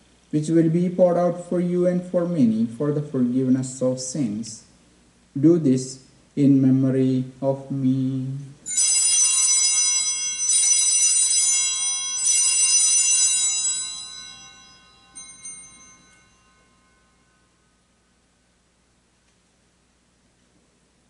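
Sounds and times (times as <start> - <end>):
small altar bells ringing: 8.6 - 18.5.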